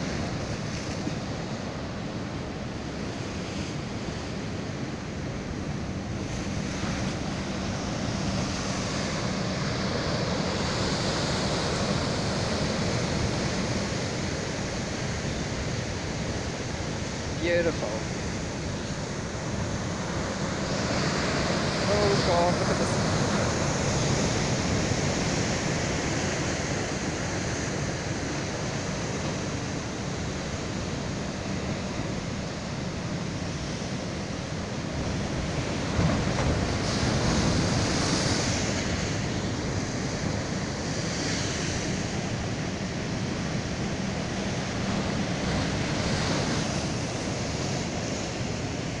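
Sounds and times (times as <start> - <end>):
surf breaking and rushing: 0.0 - 49.0.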